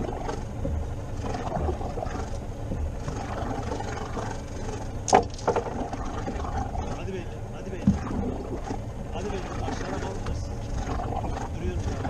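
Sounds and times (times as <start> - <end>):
knocks on boat: 0.0 - 9.3
wind and water rumble: 0.0 - 12.0.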